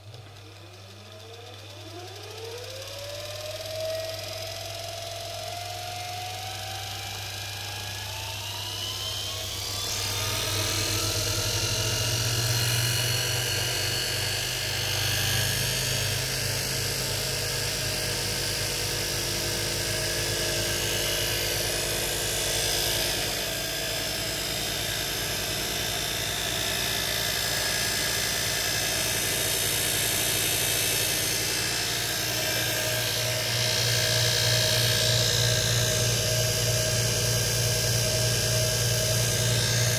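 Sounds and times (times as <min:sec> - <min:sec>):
dynamo whine: 0:20.9 - 0:39.9.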